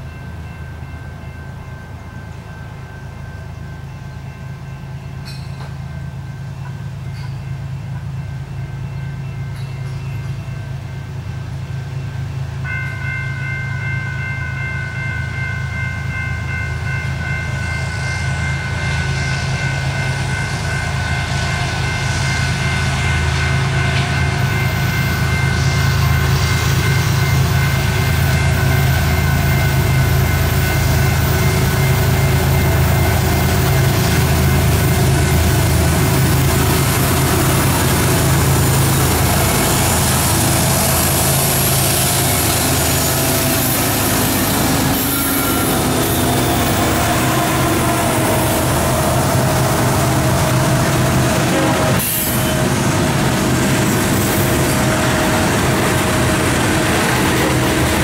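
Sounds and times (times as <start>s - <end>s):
diesel locomotive engine rumble: 0.0s - 58.0s
distant train horn chord: 17.6s - 53.8s.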